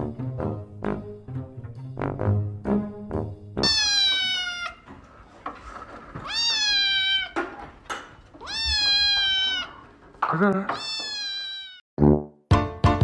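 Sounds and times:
kitten meowing: 0:03.6 - 0:04.8, 0:06.2 - 0:07.4, 0:08.4 - 0:09.8, 0:10.7 - 0:11.8.

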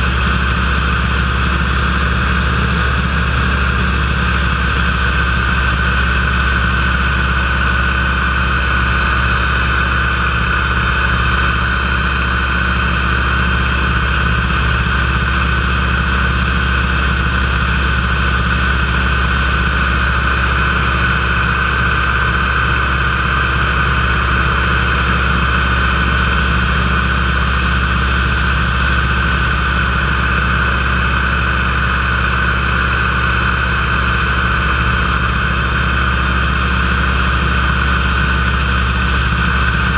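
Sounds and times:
radial engine and propeller running: 0:00.0 - 0:39.9.

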